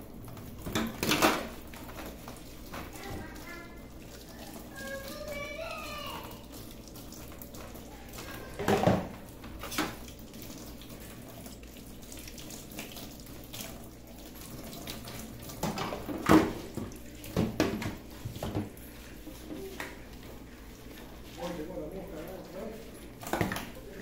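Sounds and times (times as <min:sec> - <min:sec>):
tap water running into a sink: 0:00.0 - 0:24.0
plastic knocking against sink: 0:08.5 - 0:10.0, 0:15.6 - 0:18.8, 0:23.2 - 0:23.8.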